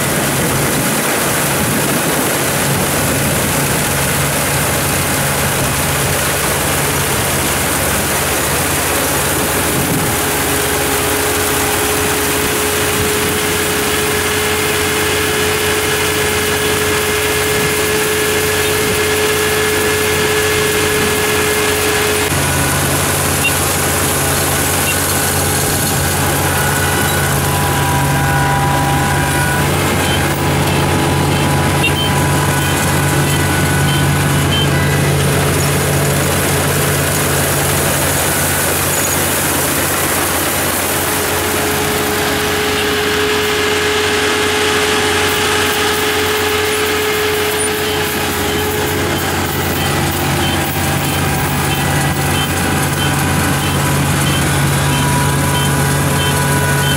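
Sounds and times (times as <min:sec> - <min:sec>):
combine harvester diesel engine: 0:00.0 - 0:56.9
thin machinery whines: 0:00.0 - 0:56.9.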